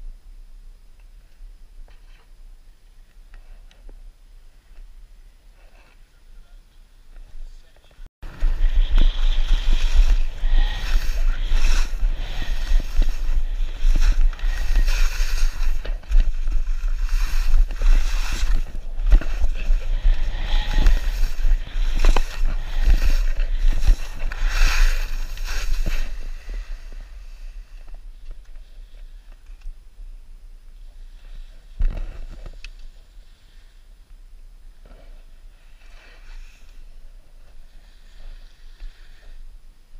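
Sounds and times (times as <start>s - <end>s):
skis scraping over snow: 7.7s - 28.0s, 35.0s - 39.4s
wind buffeting microphone: 8.2s - 28.8s.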